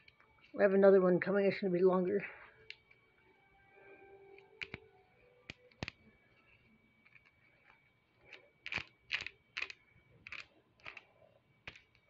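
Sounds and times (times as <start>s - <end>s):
plastic links snapping with clicks: 4.4s - 4.8s, 5.5s - 6.0s.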